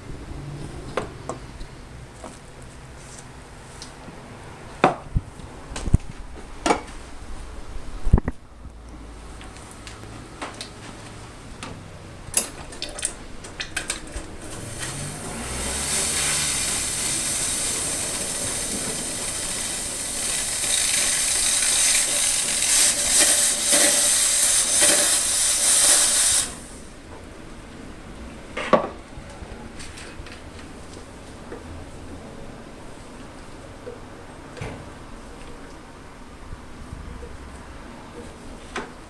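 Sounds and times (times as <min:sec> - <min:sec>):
steam wand hissing: 0:14.6 - 0:26.9.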